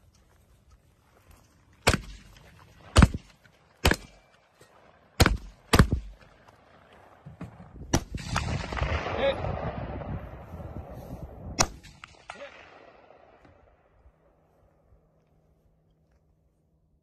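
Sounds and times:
rifle gunshots: 2.9s - 4.3s, 5.1s - 6.2s, 7.9s - 10.2s.

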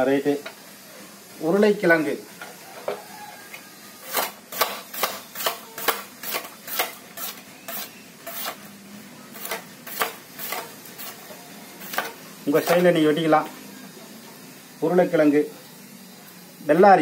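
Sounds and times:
vegetable cutter chopping potato: 4.1s - 8.6s, 9.4s - 11.2s.

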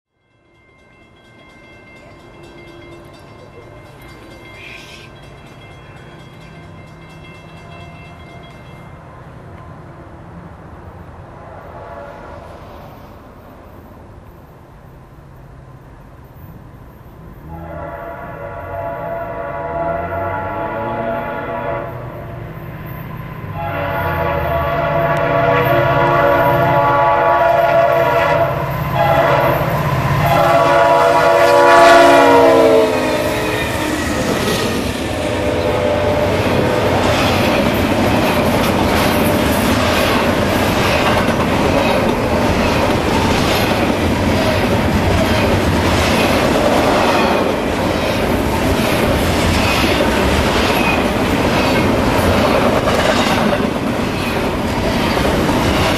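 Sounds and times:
train cars rolling by: 0.2s - 55.9s
locomotive horn blasts: 11.6s - 12.5s, 17.4s - 22.3s, 23.5s - 37.1s.

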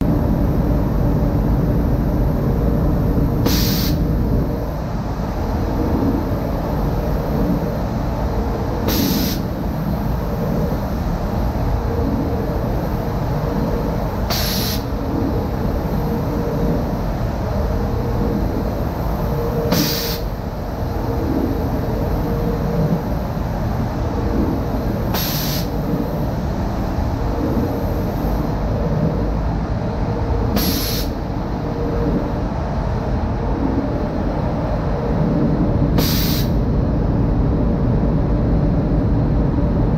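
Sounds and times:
booth air rushing: 0.0s - 39.9s
sharp air hiss: 3.4s - 4.1s, 8.8s - 9.6s, 14.3s - 14.9s, 19.7s - 20.4s, 25.1s - 25.8s, 30.5s - 31.2s, 36.0s - 36.6s.

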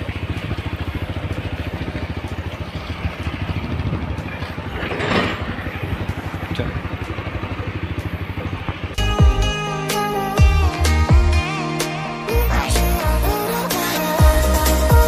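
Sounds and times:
motorcycle engine running: 0.0s - 15.0s
electronic music with heavy bass: 9.0s - 15.0s.

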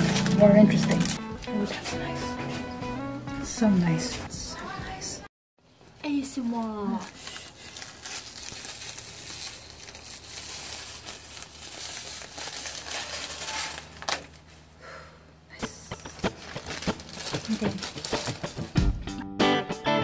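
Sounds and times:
plastic film crinkling: 0.0s - 1.2s, 6.4s - 14.5s, 16.0s - 18.8s
sharp plastic crackles: 0.0s - 1.2s, 6.5s - 14.5s, 16.0s - 18.8s.

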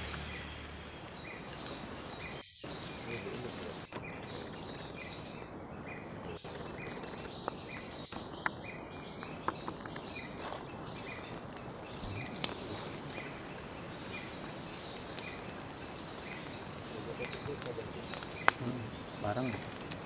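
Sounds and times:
steady background hiss: 0.0s - 9.6s.

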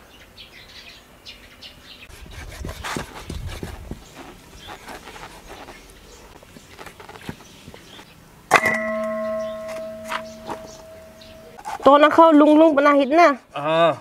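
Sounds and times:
metal bowl clang ringing: 8.5s - 11.6s.

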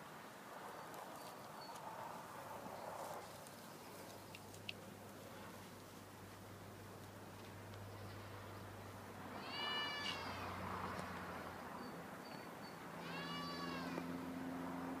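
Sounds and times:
goat bleating: 9.4s - 10.4s, 13.0s - 14.0s.

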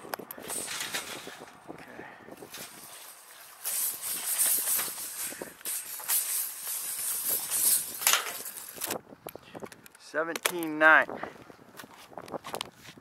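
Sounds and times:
hissing rustling on microphone: 2.4s - 9.0s.

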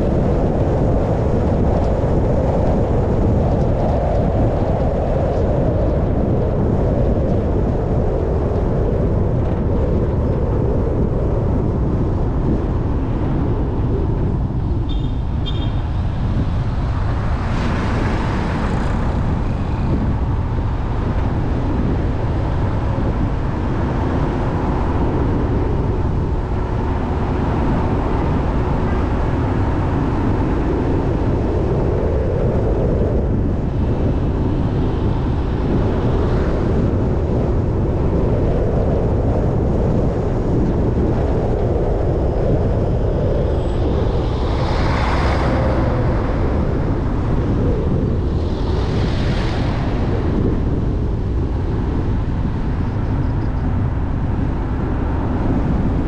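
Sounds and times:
car engine and road noise: 10.9s - 28.5s, 40.9s - 56.0s.

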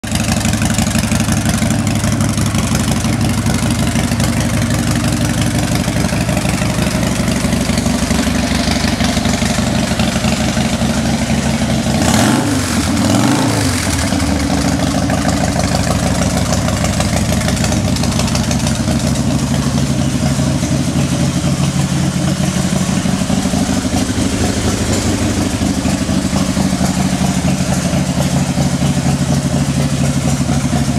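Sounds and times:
motorcycle engine idling: 0.0s - 30.9s
engine revving: 7.3s - 15.0s, 20.2s - 30.6s.

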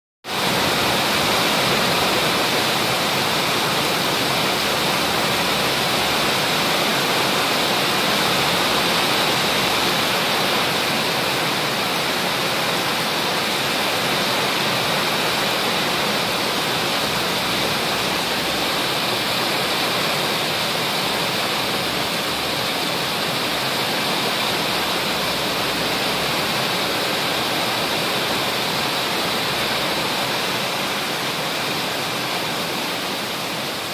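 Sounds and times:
heavy rain pouring: 0.2s - 33.9s.

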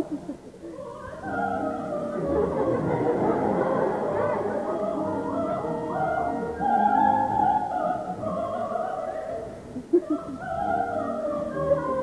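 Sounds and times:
operatic singing: 0.6s - 12.0s
orchestra playing: 1.3s - 7.2s.

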